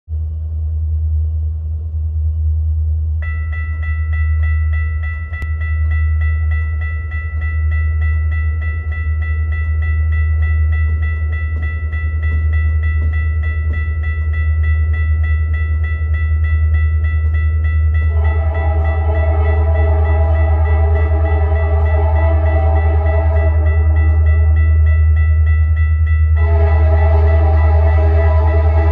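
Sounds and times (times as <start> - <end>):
railroad crossing bell ringing: 3.2 - 28.9.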